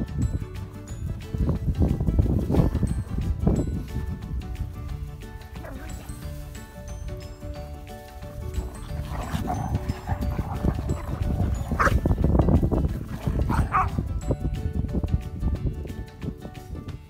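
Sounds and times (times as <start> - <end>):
background music: 0.0 - 17.0
dogs barking: 8.6 - 12.2, 12.9 - 14.1
dog yipping: 9.0 - 12.0, 13.4 - 14.0.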